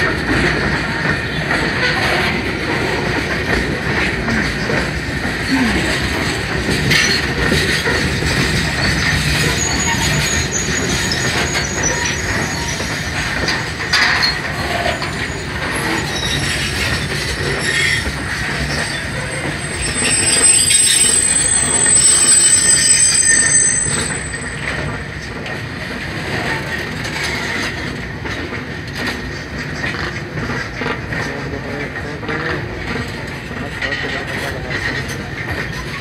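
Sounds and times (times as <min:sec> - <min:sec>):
freight wagons rumbling on rails: 0:00.0 - 0:36.0
wheels squealing: 0:04.8 - 0:26.6.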